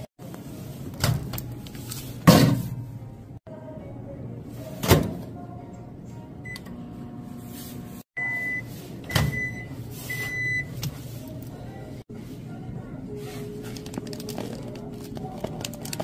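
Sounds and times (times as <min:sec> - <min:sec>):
microwave keypad beep: 0:08.2 - 0:10.8
microwave long beeps: 0:08.2 - 0:10.8.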